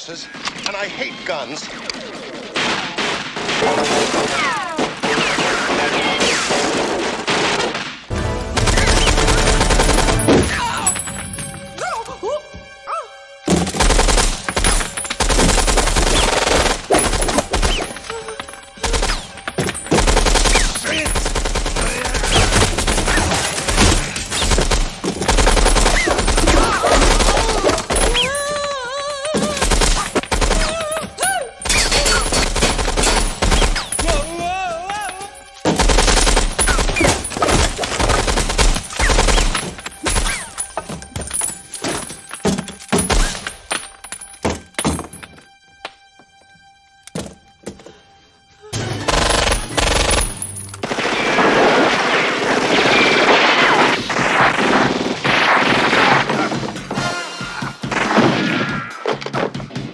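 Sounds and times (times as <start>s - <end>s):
woman screaming: 26.5s - 29.9s, 30.5s - 32.3s
submachine gun automatic fire: 49.0s - 54.9s.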